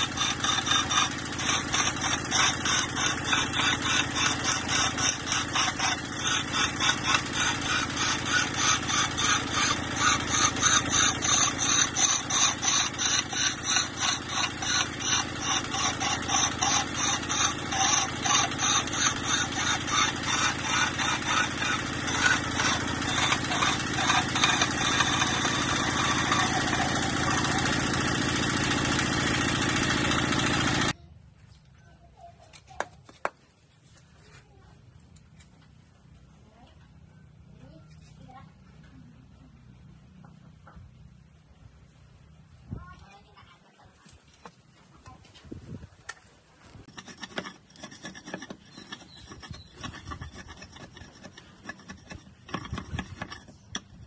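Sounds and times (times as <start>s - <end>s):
diesel engine running: 0.0s - 31.0s
turning tool scraping wood: 0.0s - 31.0s, 46.7s - 54.0s.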